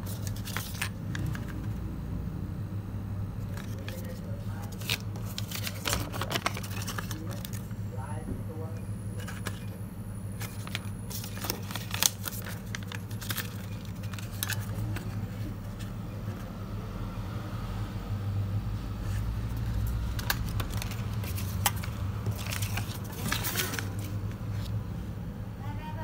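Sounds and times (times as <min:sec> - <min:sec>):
banknotes rustling and crackling: 0:00.0 - 0:01.8, 0:03.4 - 0:07.8, 0:10.4 - 0:16.5, 0:19.0 - 0:24.9
steady low hum: 0:00.0 - 0:26.0.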